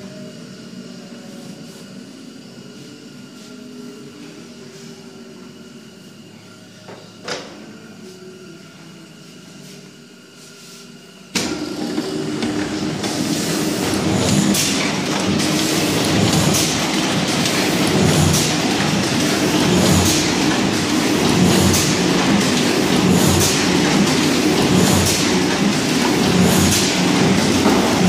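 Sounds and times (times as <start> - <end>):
press mechanical clatter: 11.4 - 28.0.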